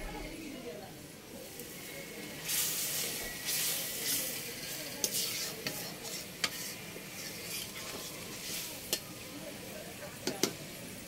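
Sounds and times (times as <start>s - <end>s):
paste sizzling in a wok: 0.6s - 11.0s
metal spatula scraping a wok: 1.8s - 9.1s.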